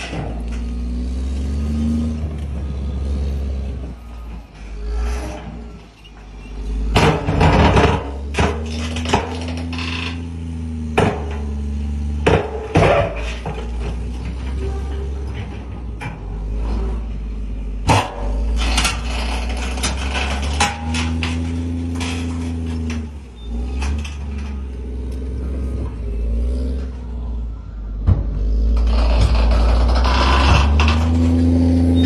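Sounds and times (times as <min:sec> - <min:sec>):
bulldozer diesel engine under load: 0:00.0 - 0:32.0
steel and rock knocking: 0:04.0 - 0:16.5, 0:17.8 - 0:25.8, 0:28.0 - 0:32.0.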